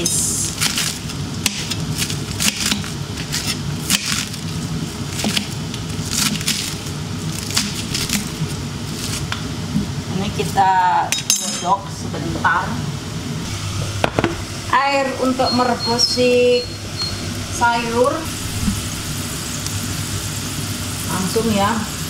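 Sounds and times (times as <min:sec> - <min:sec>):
low background hum: 0:00.0 - 0:22.0
knife crunching through cabbage: 0:00.5 - 0:09.3.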